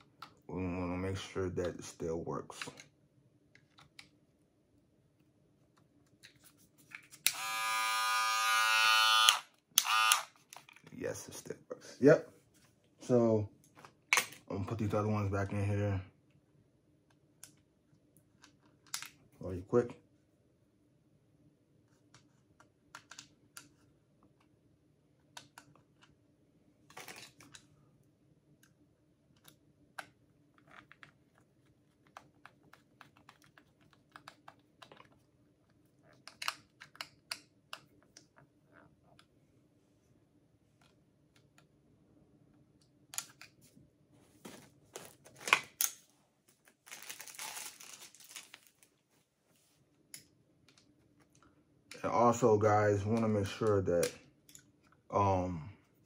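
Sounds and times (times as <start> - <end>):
plastic parts clicking and tapping: 36.1 - 38.5.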